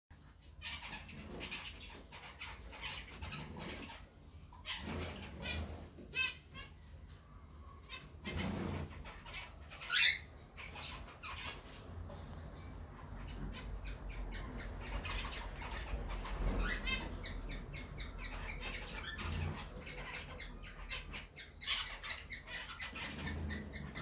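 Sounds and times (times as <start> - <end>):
wings fluttering and rustling: 0.2 - 9.8, 14.7 - 24.0
cockatiel chirping: 7.8 - 12.3, 13.0 - 24.0.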